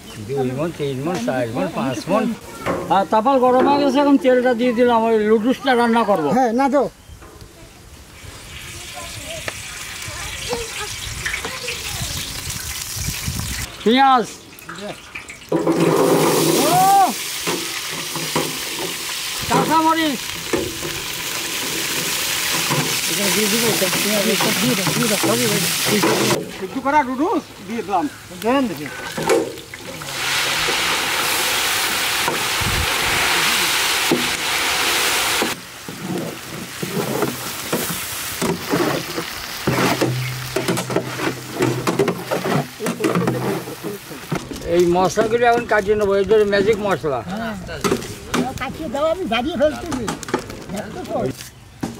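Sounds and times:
onions sizzling in oil: 8.0 - 44.3
ladle scraping pan: 14.6 - 19.7, 20.3 - 26.8, 35.4 - 44.4.

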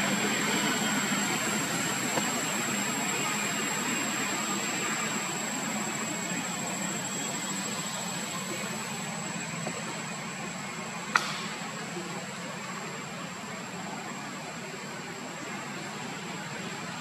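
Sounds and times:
high-pitched whine: 0.0 - 17.0
sharp click: 11.1 - 11.6.

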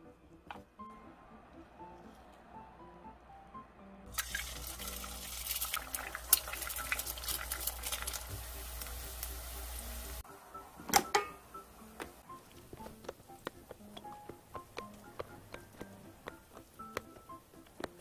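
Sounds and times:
soft background music: 0.0 - 18.0
egg sizzling in a pan: 4.1 - 10.2.

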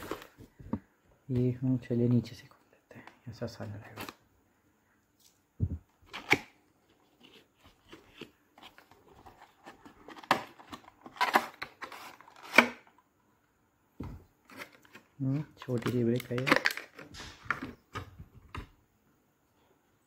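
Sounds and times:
cardboard scraping and snapping: 7.1 - 12.8.

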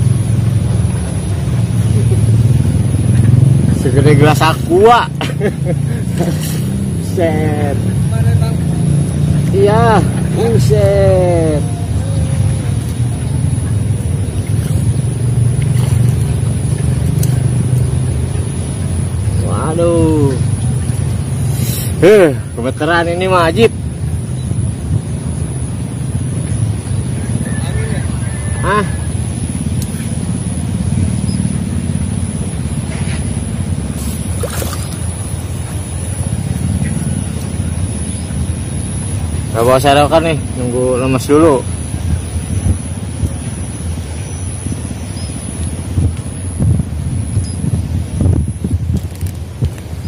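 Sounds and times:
steady low engine drone: 0.0 - 50.0
fish splashing in water: 6.2 - 7.0, 11.9 - 19.3, 32.9 - 39.4.

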